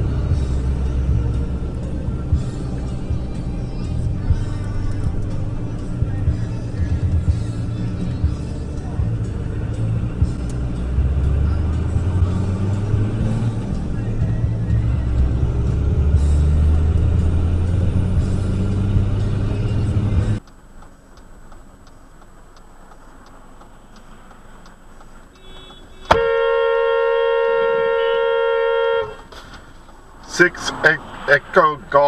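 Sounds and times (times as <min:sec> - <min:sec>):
road and engine rumble: 0:00.0 - 0:32.0
car horn blast: 0:25.4 - 0:29.4.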